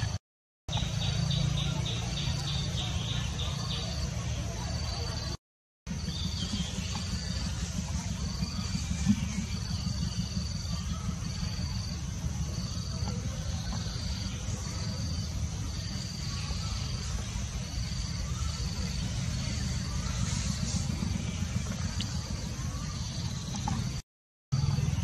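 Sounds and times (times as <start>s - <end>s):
low rumble: 5.9s - 24.0s.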